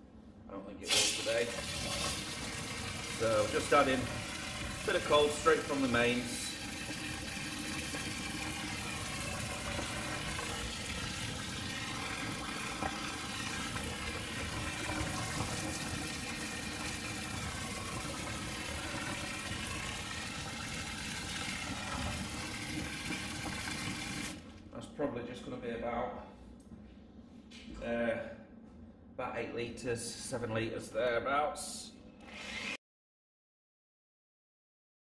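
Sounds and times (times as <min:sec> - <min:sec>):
water rushing from a hose into liquid: 0:00.9 - 0:24.4.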